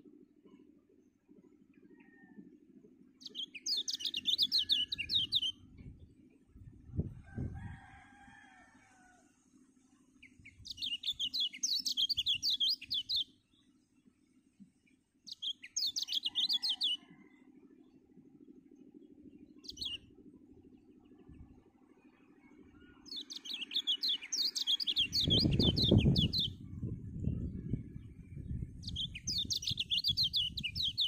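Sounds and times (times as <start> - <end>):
bird twittering song: 3.2 - 6.7, 10.2 - 14.1, 14.8 - 18.0, 18.6 - 31.0.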